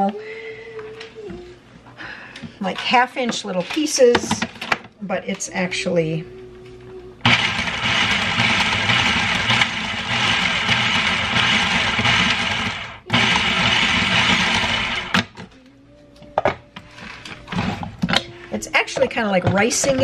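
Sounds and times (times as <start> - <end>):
food processor chopping: 7.2 - 15.4.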